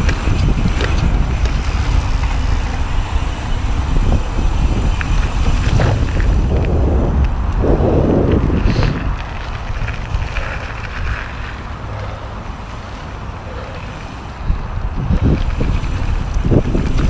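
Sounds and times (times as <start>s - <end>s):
bike tyres rumbling on dirt: 0.0s - 17.0s
wind buffeting microphone: 0.0s - 17.0s.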